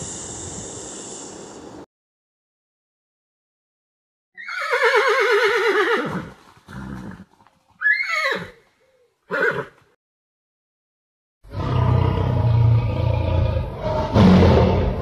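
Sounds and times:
horse breathy blow: 0.0 - 1.6
horse whinnying: 4.4 - 9.8.

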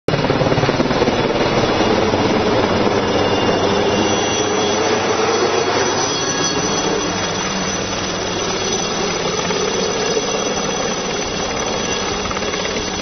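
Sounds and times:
helicopter rotor noise: 0.1 - 13.0
high turbine whine: 0.1 - 13.0.

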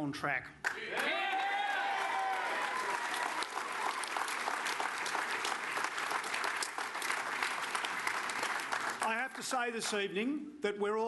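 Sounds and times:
crowd applauding: 0.6 - 10.0.

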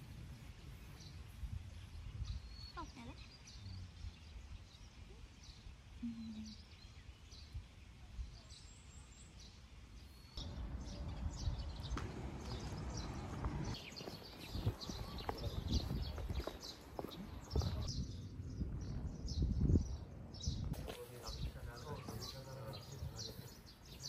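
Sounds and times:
small birds chirping: 0.1 - 24.0.

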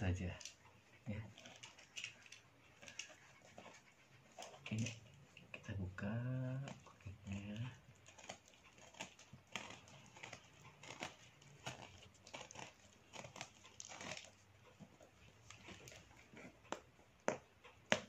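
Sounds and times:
blade cutting packing tape: 7.3 - 14.4.

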